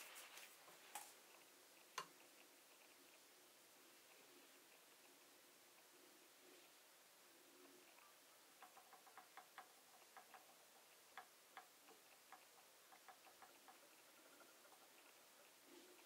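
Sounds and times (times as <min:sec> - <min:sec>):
faint small ticks: 0:00.9 - 0:03.3, 0:07.5 - 0:16.0.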